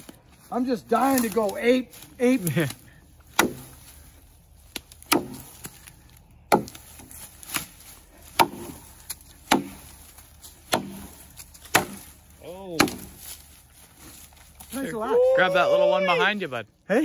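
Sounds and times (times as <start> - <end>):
axe chopping wood: 2.7 - 3.9, 4.7 - 13.4.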